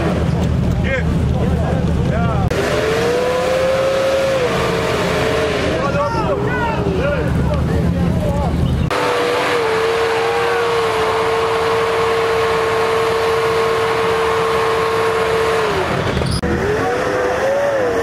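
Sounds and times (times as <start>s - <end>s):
engine at high revs: 0.0s - 6.5s, 8.8s - 18.0s
loud rushing noise: 0.0s - 18.0s.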